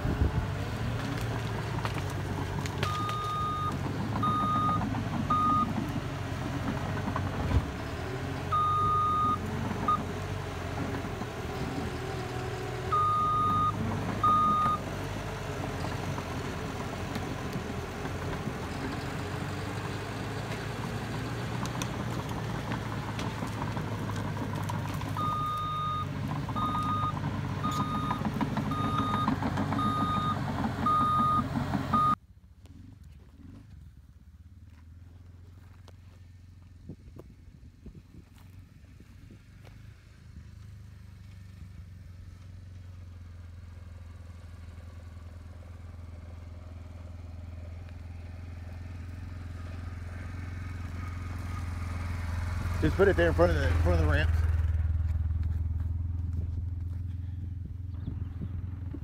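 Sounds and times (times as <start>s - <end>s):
diesel engine running: 0.0s - 59.0s
reversing alarm beeping: 2.9s - 5.7s, 8.5s - 10.0s, 12.9s - 14.8s, 25.2s - 32.2s.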